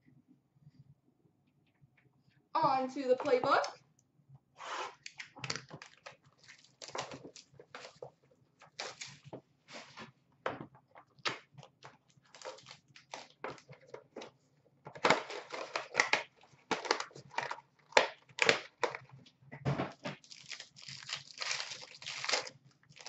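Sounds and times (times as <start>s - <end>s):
packaging crinkling and tearing: 5.1s - 9.3s, 11.2s - 14.1s, 15.0s - 19.1s, 20.1s - 23.0s.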